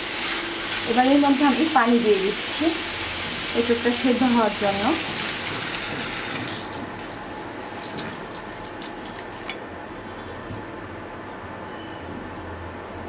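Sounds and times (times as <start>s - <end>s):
water hissing in hot pan: 0.0s - 6.6s.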